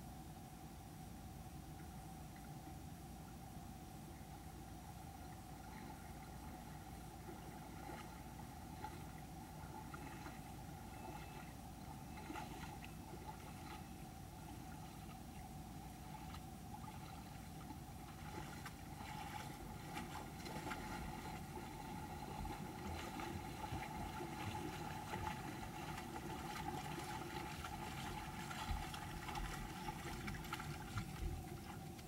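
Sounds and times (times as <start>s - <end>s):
animals splashing through water: 5.5s - 32.0s
creek running over stones: 18.0s - 32.0s.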